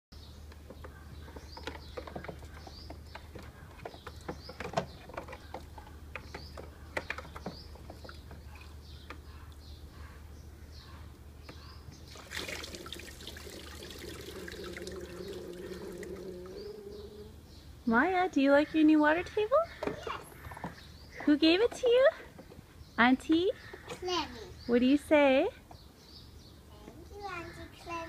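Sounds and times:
birds chirping: 0:00.2 - 0:28.0
water pouring and trickling: 0:12.0 - 0:16.8.

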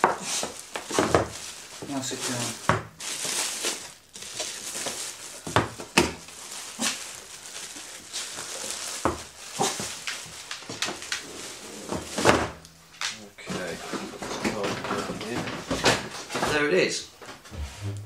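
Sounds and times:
plastic wrapping crinkling: 0:00.0 - 0:12.4.

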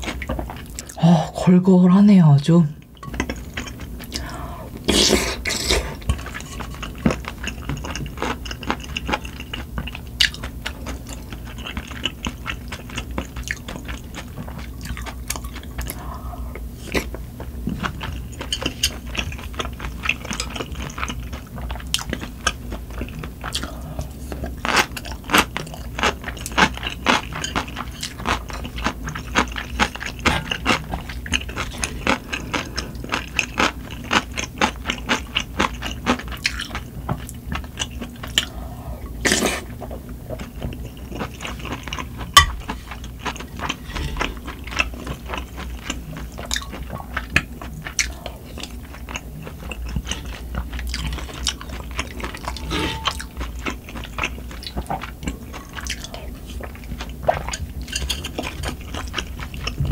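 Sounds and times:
wet chewing: 0:39.2 - 0:59.9.

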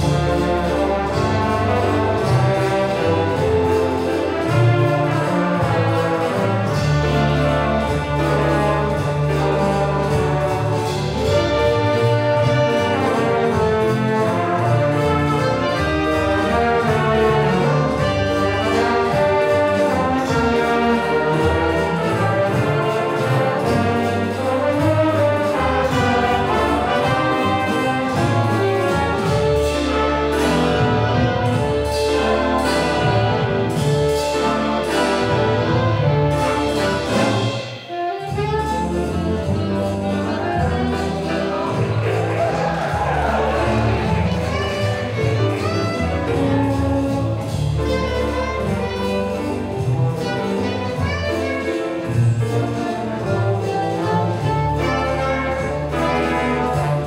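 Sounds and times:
jazz big band playing: 0:00.0 - 0:57.0.

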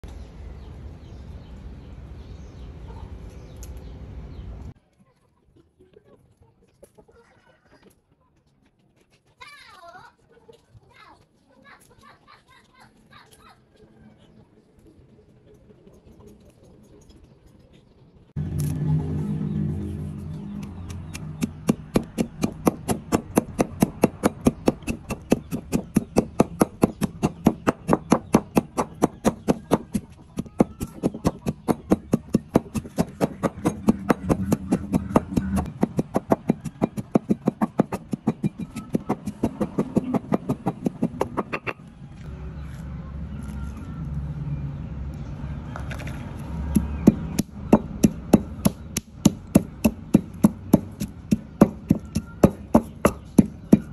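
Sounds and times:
pestle pounding in stone mortar: 0:20.8 - 0:41.8, 0:46.7 - 0:53.9.

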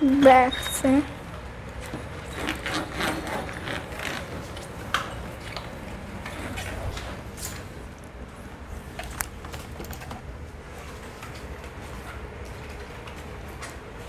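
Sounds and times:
small irregular clicks on wires: 0:08.9 - 0:10.2.

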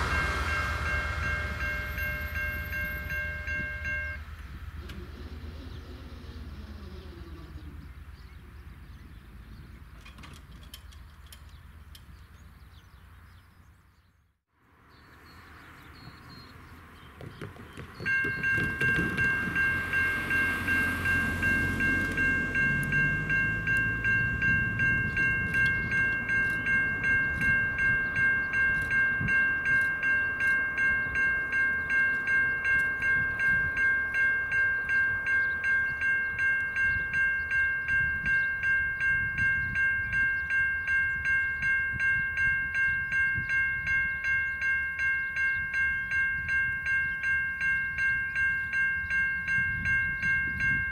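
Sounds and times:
level crossing bells ringing: 0:00.0 - 0:05.6, 0:18.0 - 0:50.9.

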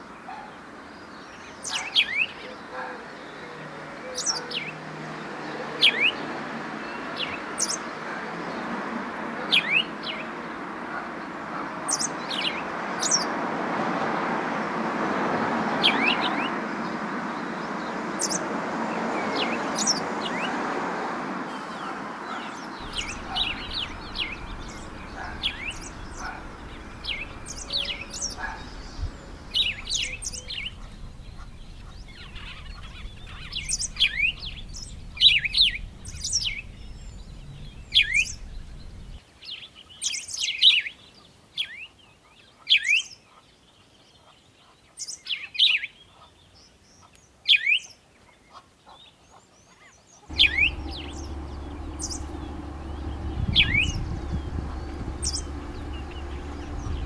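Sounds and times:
small songbirds chirping: 0:00.0 - 0:08.0, 0:15.7 - 0:20.6, 0:21.5 - 0:42.2, 0:50.0 - 0:57.0
low background rumble: 0:22.8 - 0:39.2, 0:50.3 - 0:57.0.

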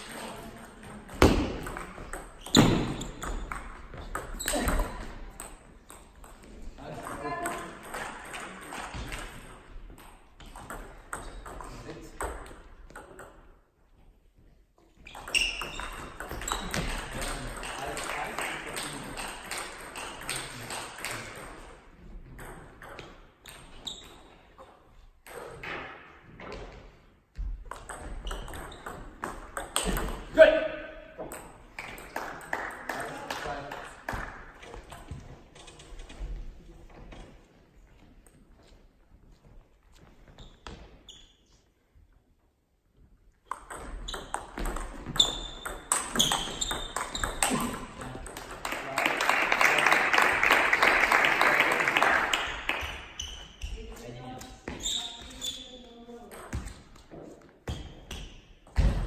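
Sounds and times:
ping pong ball pinging: 0:00.8 - 0:13.6, 0:15.1 - 0:18.1, 0:22.3 - 0:24.1, 0:27.6 - 0:30.3, 0:43.5 - 0:48.6
table tennis balls clicking: 0:43.4 - 0:48.7.

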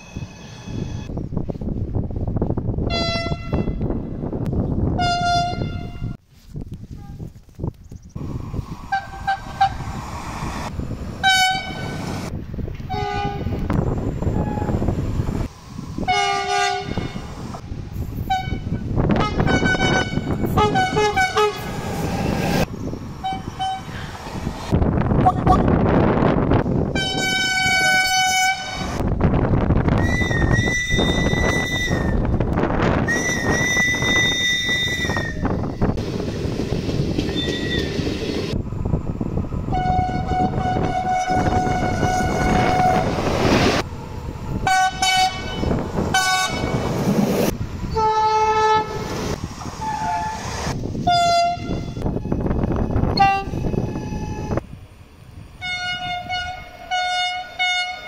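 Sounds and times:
train rumbling on the track: 0:00.0 - 0:58.0
train horn blasts: 0:02.9 - 0:03.8, 0:05.0 - 0:06.2, 0:08.9 - 0:09.9, 0:11.2 - 0:12.1, 0:12.9 - 0:13.6, 0:16.1 - 0:17.2, 0:18.2 - 0:21.7, 0:25.2 - 0:25.8, 0:26.9 - 0:29.0, 0:39.7 - 0:43.2, 0:44.6 - 0:46.8, 0:47.9 - 0:49.0, 0:51.0 - 0:54.6, 0:55.6 - 0:58.0.

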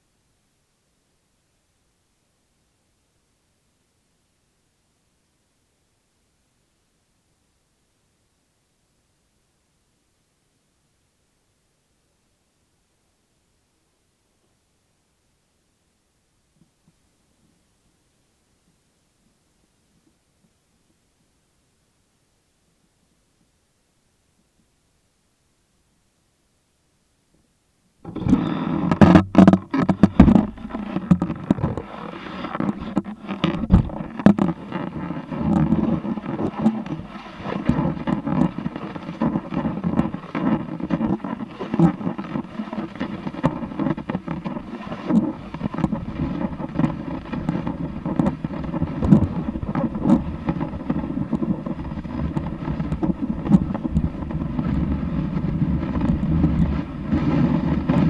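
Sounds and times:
wind on microphone: 0:28.0 - 0:58.0
knocks and clatter: 0:28.1 - 0:41.3
snowboard scraping on snow: 0:28.1 - 0:58.0.

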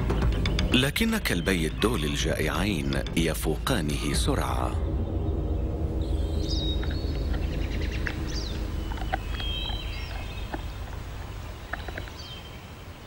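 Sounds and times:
low steady rumble: 0:02.4 - 0:12.8.

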